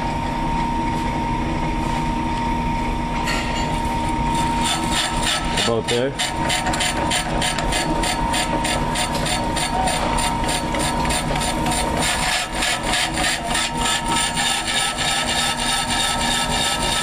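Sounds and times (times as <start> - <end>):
brake lathe hum: 4.1 - 17.0
rhythmic scraping of cutter: 4.3 - 17.0.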